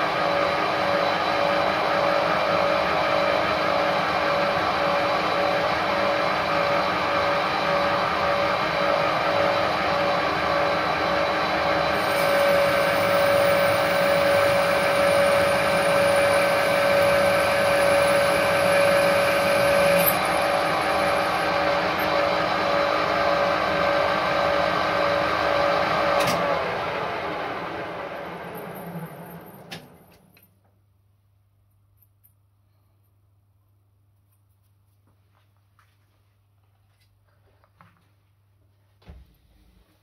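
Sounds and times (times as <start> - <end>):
lathe spindle whine: 0.0 - 30.3.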